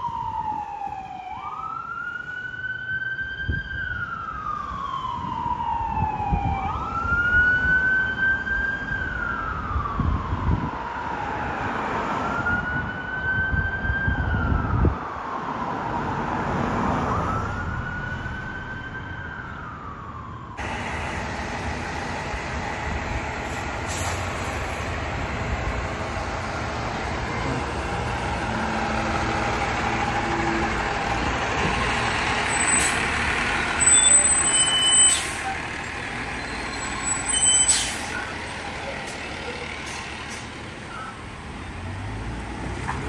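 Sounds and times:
fire engine siren wailing: 0:00.0 - 0:43.0
traffic: 0:00.0 - 0:43.0
engine rumble: 0:14.6 - 0:43.0
diesel engine running: 0:20.6 - 0:34.6.

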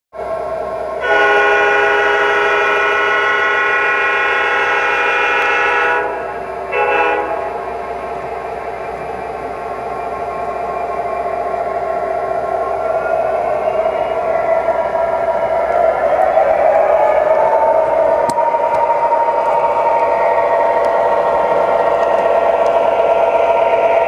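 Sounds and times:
model engine and track rumble: 0:00.2 - 0:24.0
model train horn blasts: 0:01.0 - 0:07.6.

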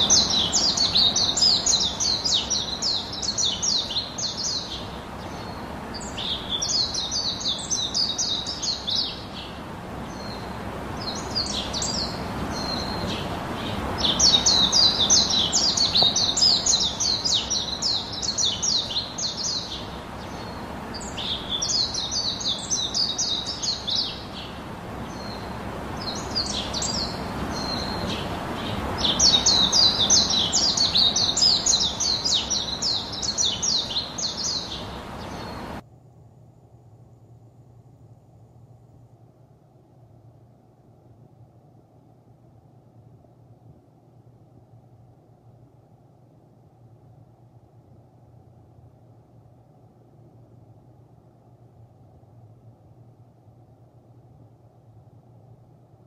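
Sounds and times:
songbird chattering song: 0:00.0 - 0:35.8
wind in trees: 0:00.0 - 0:56.0.

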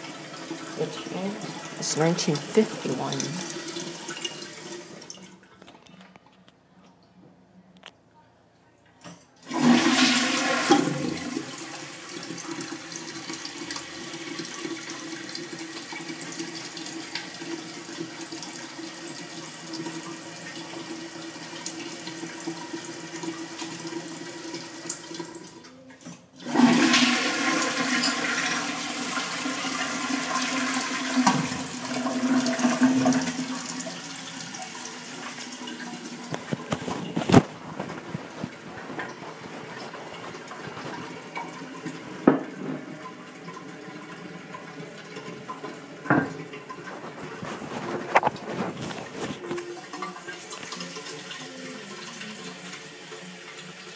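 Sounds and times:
toilet flushing: 0:00.0 - 0:05.6, 0:09.4 - 0:53.9
toilet tank refilling hiss: 0:09.5 - 0:25.6, 0:26.4 - 0:36.7.

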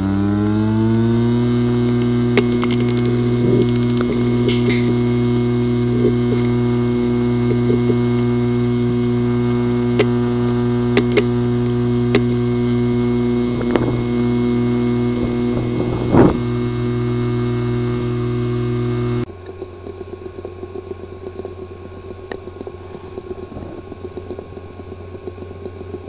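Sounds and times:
hard drive buzzing hum: 0:00.0 - 0:26.0
hard drive clicks: 0:01.3 - 0:26.0
hard drive knock: 0:20.4 - 0:26.0.

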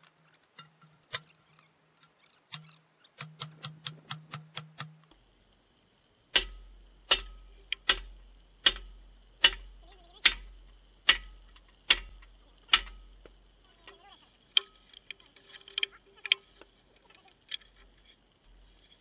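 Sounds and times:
sledgehammer striking steel: 0:06.3 - 0:13.1.

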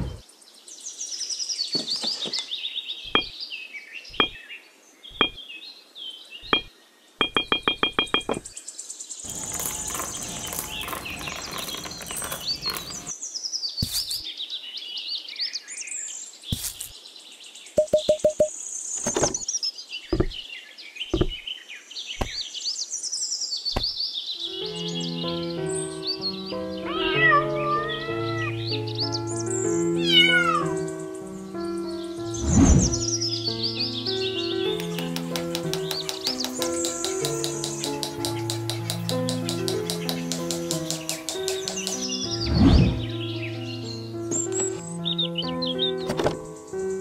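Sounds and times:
birds chirping: 0:00.0 - 0:14.4, 0:16.5 - 0:47.0
pebbles poured rattling: 0:09.3 - 0:13.1
taps and knocks of small pieces: 0:09.3 - 0:13.1, 0:16.6 - 0:16.9, 0:34.7 - 0:42.2
quick runs of clicks: 0:34.7 - 0:42.2.

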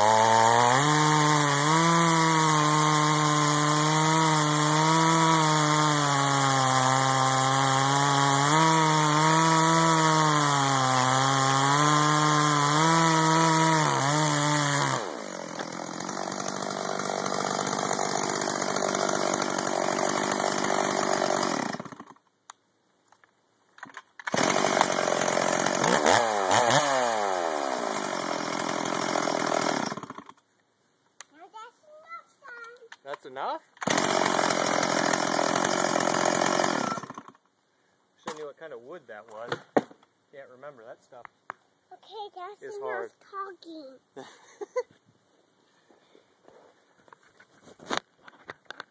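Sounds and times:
chainsaw cutting log: 0:00.0 - 0:22.2, 0:23.8 - 0:30.4, 0:33.8 - 0:37.4.

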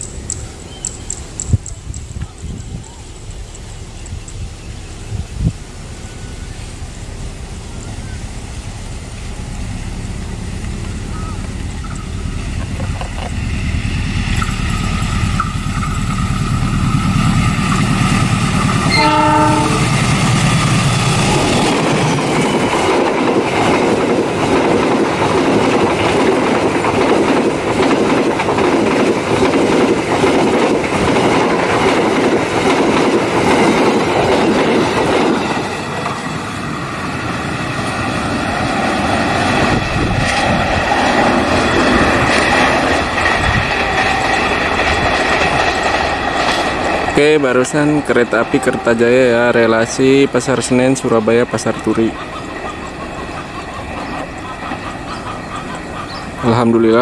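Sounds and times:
locomotive engine rumble: 0:00.0 - 0:57.0
steady rail noise: 0:00.0 - 0:57.0
wheels clacking over rail joints: 0:05.7 - 0:57.0
train horn blast: 0:18.8 - 0:20.1, 0:47.9 - 0:49.6.

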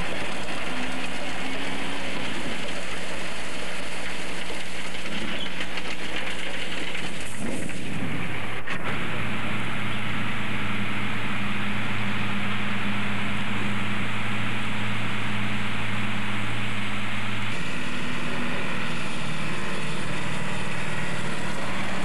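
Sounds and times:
truck engine hum: 0:00.0 - 0:22.0.

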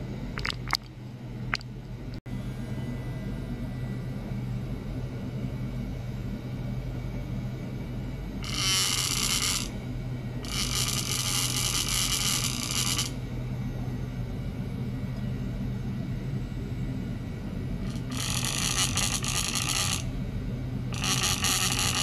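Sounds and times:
low electrical hum: 0:00.0 - 0:22.0
high buzzing hiss: 0:21.0 - 0:22.0.

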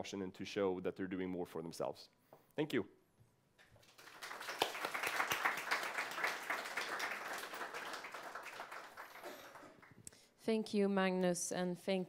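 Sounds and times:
audience applauding: 0:03.8 - 0:10.0.

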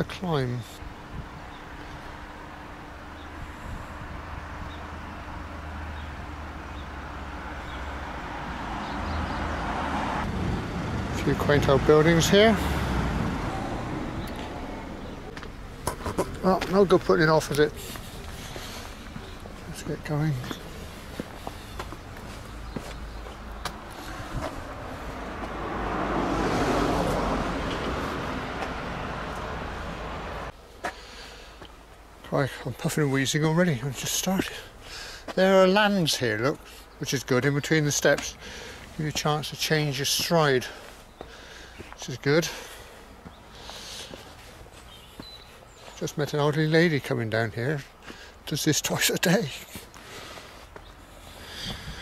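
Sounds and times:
road vehicle approaching: 0:00.0 - 0:52.0
footsteps on concrete steps: 0:15.3 - 0:26.1, 0:26.9 - 0:29.6, 0:30.8 - 0:32.0, 0:38.0 - 0:39.3, 0:40.0 - 0:46.2, 0:47.8 - 0:48.5, 0:49.4 - 0:52.0.

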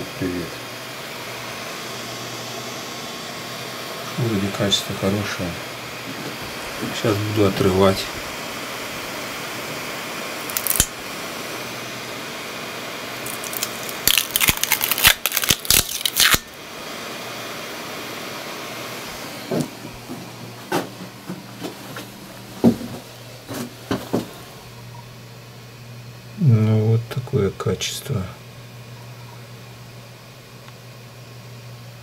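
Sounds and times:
steady hum: 0:00.0 - 0:32.0
plastic print crackling and tearing: 0:10.5 - 0:10.9, 0:13.2 - 0:16.5.

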